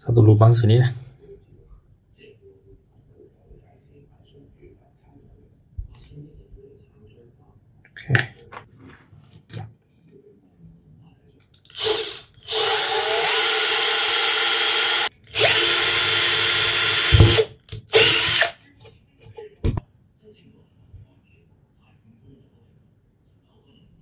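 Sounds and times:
cordless drill drilling plastic: 11.7s - 18.5s.

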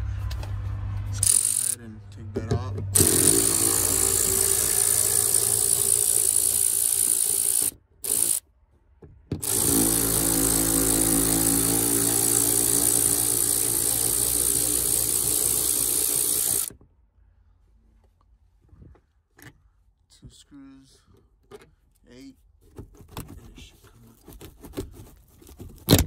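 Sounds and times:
cordless electric ratchet running: 1.2s - 1.8s, 3.0s - 8.4s, 9.4s - 16.7s.

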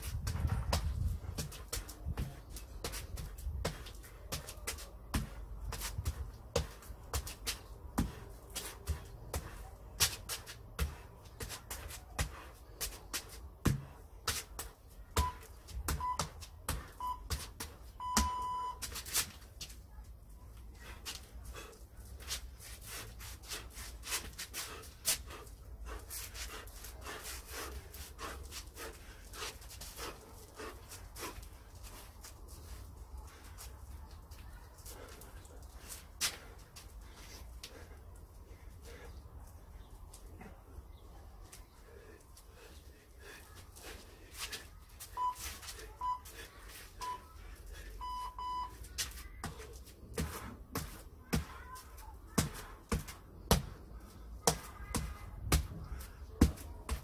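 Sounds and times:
footwork thuds on tiles: 0.0s - 19.4s, 49.4s - 51.7s, 52.3s - 53.8s, 54.4s - 57.0s
footwork on tiles: 0.0s - 47.9s, 48.7s - 57.0s
electronic timer beeping: 16.0s - 16.3s, 17.0s - 17.3s, 18.0s - 18.8s, 45.2s - 45.4s, 48.0s - 48.8s.

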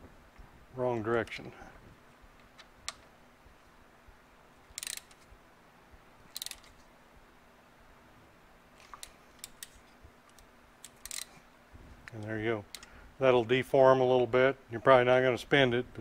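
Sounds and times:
ratchet wrench clicking: 4.8s - 5.2s, 6.3s - 6.7s, 10.3s - 11.3s.

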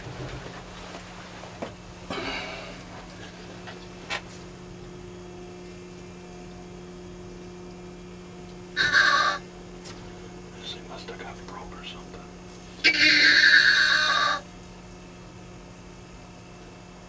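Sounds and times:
low electrical hum: 0.0s - 17.0s
person whispering: 10.6s - 12.4s.

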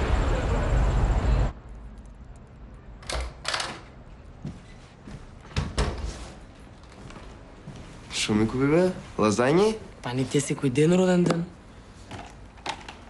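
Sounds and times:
street noise: 0.0s - 5.6s.

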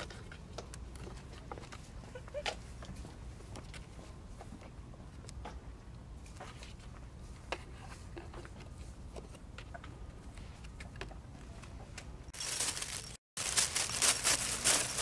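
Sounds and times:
paper bag rustling: 12.4s - 15.0s.

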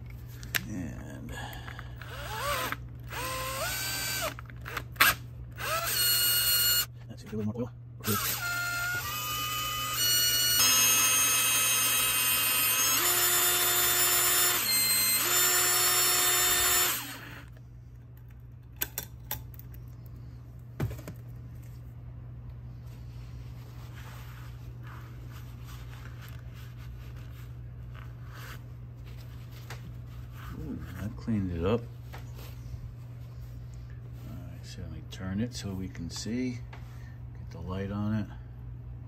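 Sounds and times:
power drill whine: 2.0s - 6.9s, 8.0s - 17.5s.

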